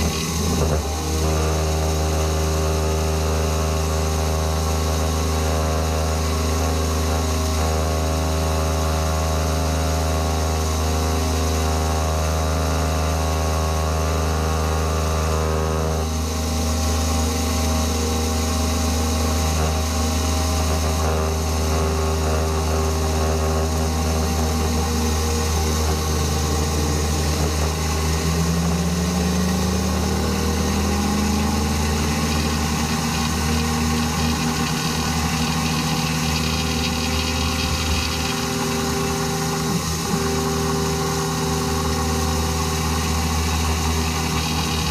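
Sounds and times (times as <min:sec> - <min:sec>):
milling cutter cutting steel: 0:00.0 - 0:44.9
motor hum: 0:00.0 - 0:44.9
rising tone: 0:23.7 - 0:40.2.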